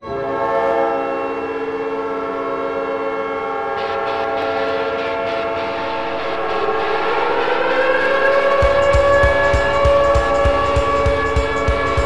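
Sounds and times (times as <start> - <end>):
air horn chord: 2.3 - 12.0
rough noisy layer: 3.7 - 12.0.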